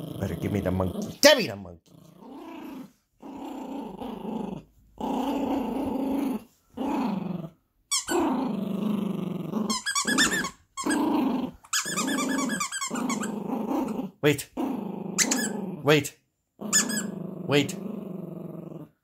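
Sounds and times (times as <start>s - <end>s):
puppy growling: 0.0s - 1.2s, 1.8s - 15.9s, 16.6s - 19.0s
high-pitched squeaks: 9.7s - 11.0s, 11.7s - 13.4s.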